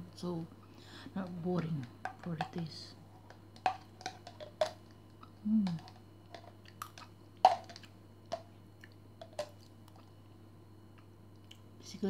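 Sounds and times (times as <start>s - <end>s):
low hum of voice: 5.4s - 5.9s.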